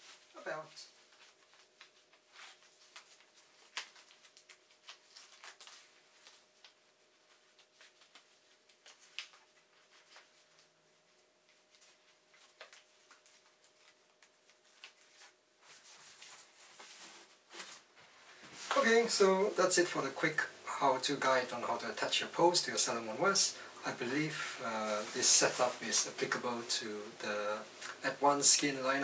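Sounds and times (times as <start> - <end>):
fabric rustling: 0.0 - 19.9, 24.0 - 26.6.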